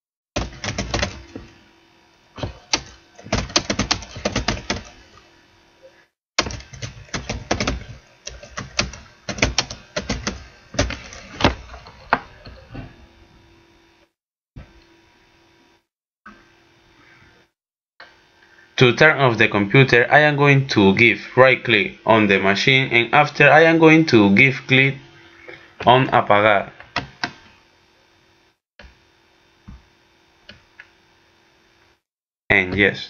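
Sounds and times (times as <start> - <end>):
computer keyboard typing: 0.4 - 1.5, 2.4 - 5.0, 6.4 - 11.3.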